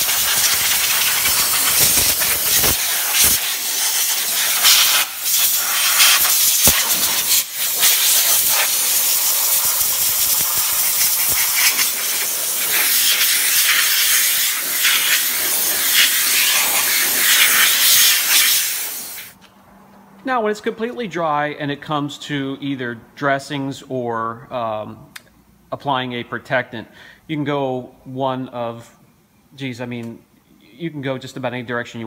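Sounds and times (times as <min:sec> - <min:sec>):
air blow gun hissing: 0:00.0 - 0:19.4.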